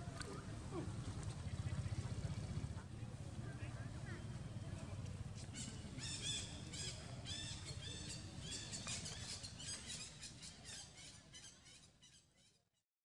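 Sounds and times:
low steady rumble: 0:00.0 - 0:08.7.

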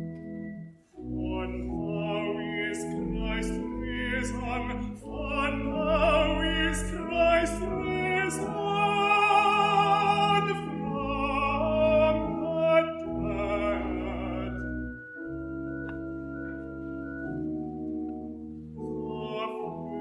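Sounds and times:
organ playing: 0:00.0 - 0:20.0
tenor singing with vibrato: 0:01.2 - 0:15.2.

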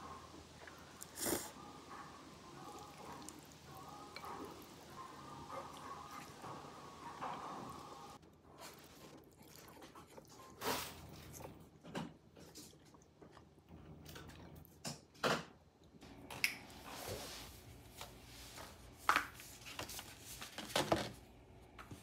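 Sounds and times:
chewing: 0:00.0 - 0:14.8.

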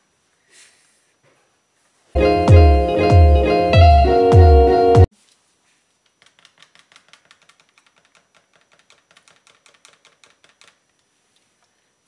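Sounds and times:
background music: 0:02.2 - 0:05.1
whisk clicking against plastic cup: 0:06.2 - 0:10.8.

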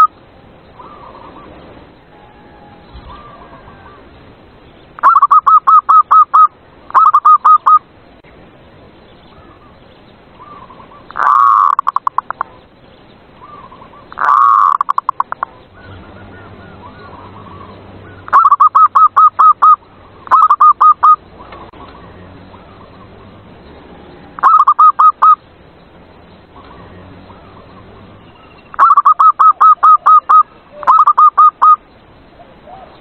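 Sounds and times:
dove cooing: 0:10.4 - 0:12.6, 0:13.4 - 0:23.3, 0:24.2 - 0:25.4, 0:26.6 - 0:31.8.

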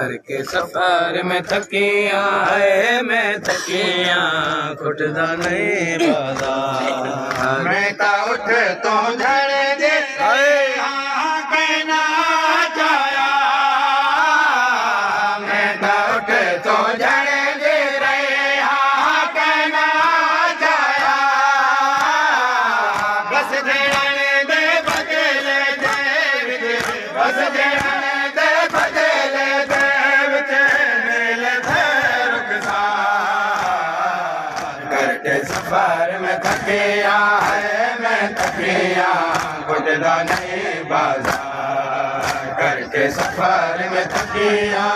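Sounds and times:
men chanting a lament: 0:00.0 - 0:44.9
chest-beating slaps: 0:42.2 - 0:44.5.

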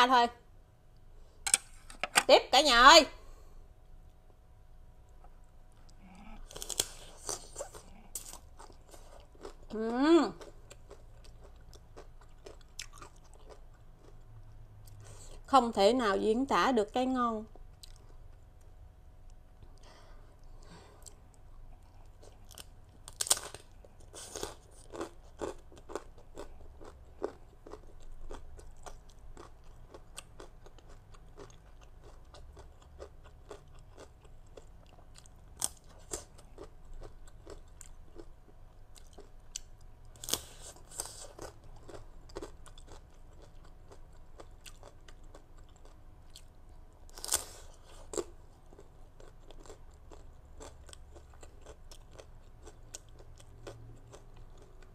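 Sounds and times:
soft chewing clicks: 0:10.4 - 0:15.0, 0:17.5 - 0:24.2, 0:24.8 - 0:54.9
crunching a crisp cracker: 0:22.0 - 0:38.3, 0:38.9 - 0:54.8.

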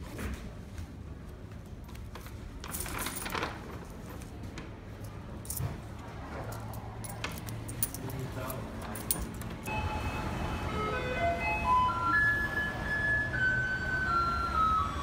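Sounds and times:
coins clinking: 0:06.5 - 0:09.6.

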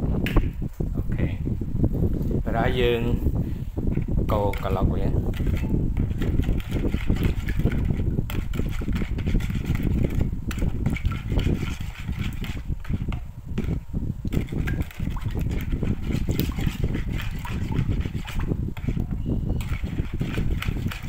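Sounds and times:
spoon scraping plastic bowl: 0:03.9 - 0:21.0
liquid sloshing: 0:04.6 - 0:21.0.

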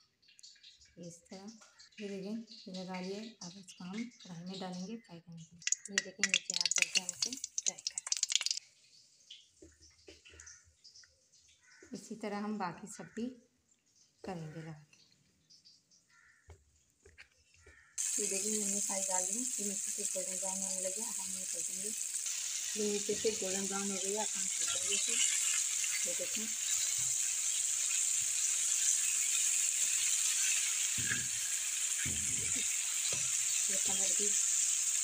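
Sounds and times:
chicken frying in oil: 0:05.5 - 0:12.2, 0:17.6 - 0:35.0.

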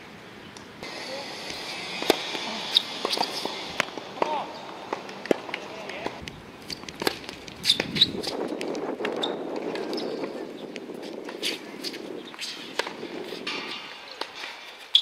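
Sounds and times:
tennis ball hit by racket: 0:01.5 - 0:06.2
shoe squeaks on hard court: 0:02.7 - 0:03.7, 0:06.7 - 0:06.9, 0:07.6 - 0:08.4, 0:09.1 - 0:10.2, 0:14.8 - 0:15.0.

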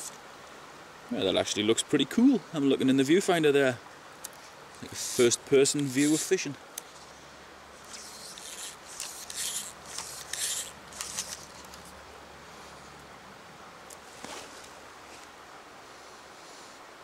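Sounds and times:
fly line rasping through rod guides: 0:04.3 - 0:07.1, 0:07.8 - 0:12.0.

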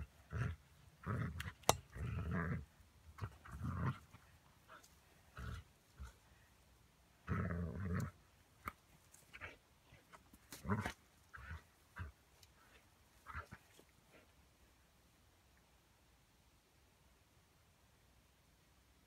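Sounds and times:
dog growling: 0:00.0 - 0:06.2, 0:07.2 - 0:08.2.

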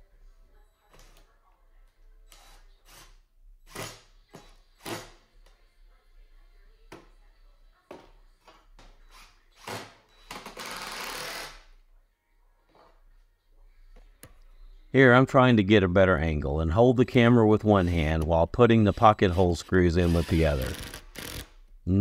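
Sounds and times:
cordless drill driving screws: 0:09.0 - 0:11.6, 0:19.0 - 0:21.6.

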